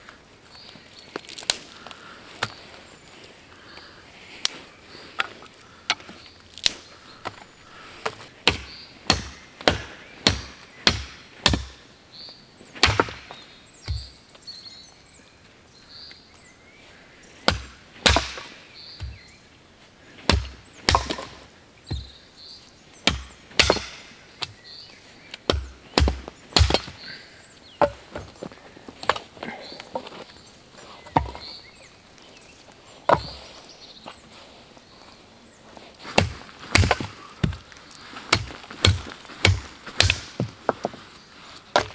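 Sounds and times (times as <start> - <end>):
firewood sticks snapping: 1.1 - 2.6, 3.7 - 11.8, 12.8 - 14.1, 17.5 - 19.2, 20.2 - 22.1, 23.0 - 24.6, 25.3 - 27.0, 35.9 - 41.0.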